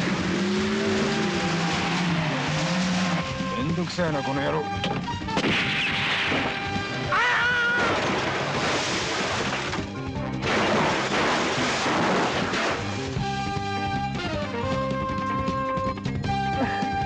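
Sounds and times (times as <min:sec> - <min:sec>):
music: 0:00.0 - 0:17.0
car crashing and metal scraping: 0:07.8 - 0:13.4.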